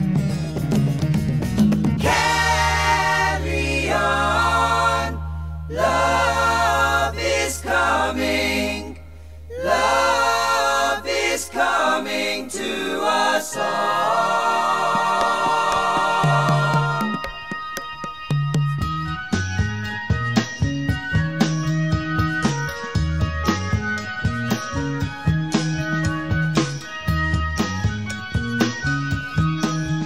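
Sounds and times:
voices singing in harmony: 2.0s - 17.4s.

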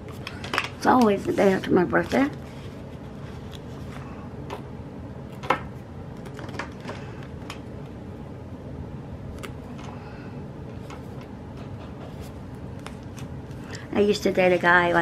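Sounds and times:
low background hum: 0.0s - 15.0s
paper handling clicks and taps: 0.1s - 1.4s.

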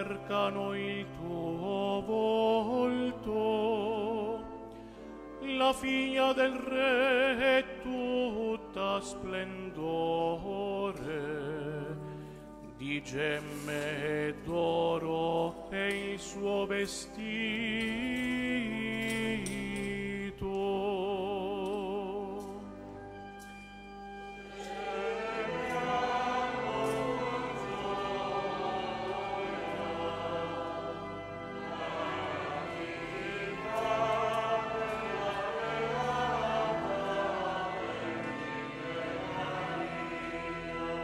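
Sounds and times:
choir singing: 0.0s - 4.4s, 24.2s - 41.0s.

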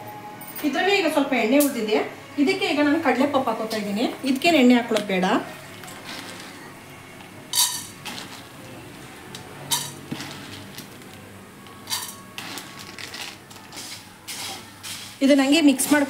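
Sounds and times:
metallic clatters in frying pan: 7.5s - 8.5s, 9.7s - 10.8s.

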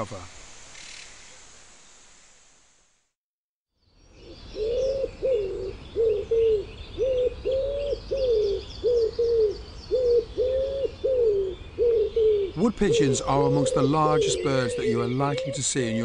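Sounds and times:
small birds chirping faintly: 3.7s - 16.0s
wood pigeon cooing: 4.2s - 16.0s.

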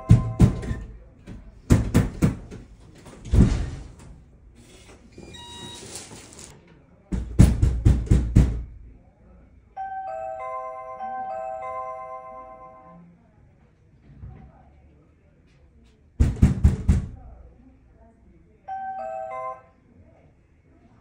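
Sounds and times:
electronic doorbell chime: 0.0s - 0.6s, 9.8s - 13.0s, 18.7s - 19.8s
knocking on a door: 0.0s - 3.8s, 7.1s - 8.8s, 16.2s - 17.3s
thud: 1.7s - 4.1s
keypad lock beeps and whir: 5.2s - 6.0s.

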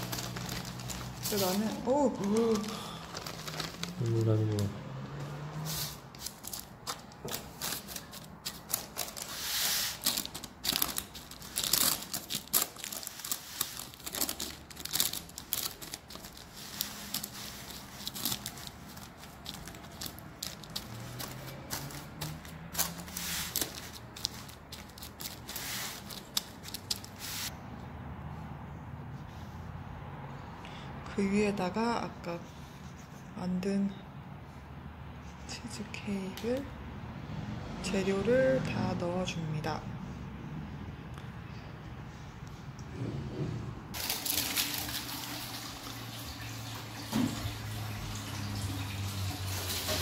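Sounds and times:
paper crinkling: 0.0s - 4.7s, 5.7s - 27.5s, 44.0s - 45.7s
biscuit crumbs crunching: 10.0s - 27.2s.

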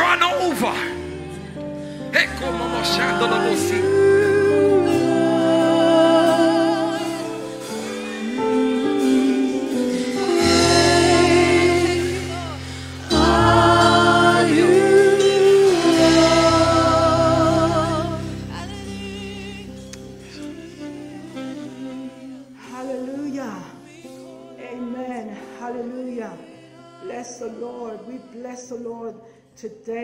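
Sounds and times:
held chords: 0.0s - 25.1s
group singing worship song: 0.0s - 29.3s
electric bass: 8.8s - 21.4s.

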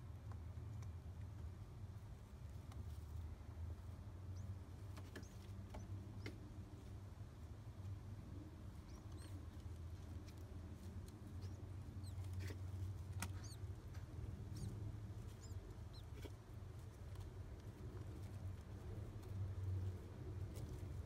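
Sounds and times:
steady low hum: 0.0s - 21.0s
chick squeaking: 11.0s - 16.9s.

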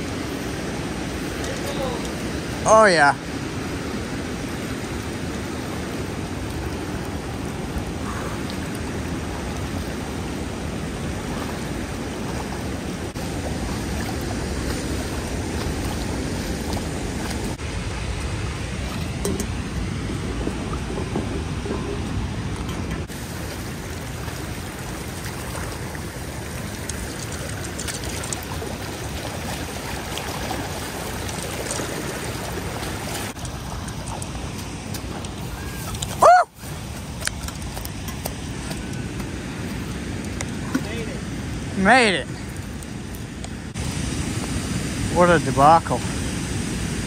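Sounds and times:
water pouring over dam spillway: 0.0s - 19.4s, 23.0s - 43.0s, 43.7s - 47.0s.

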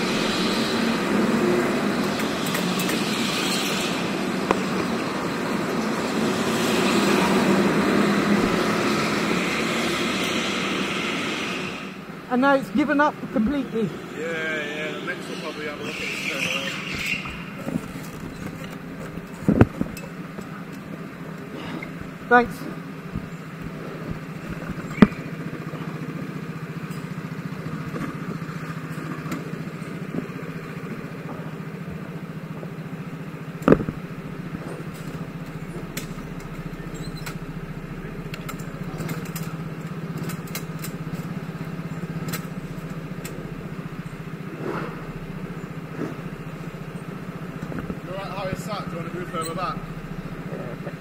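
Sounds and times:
go-kart engine idling: 0.0s - 51.0s
sharp knocks: 33.6s - 34.0s.

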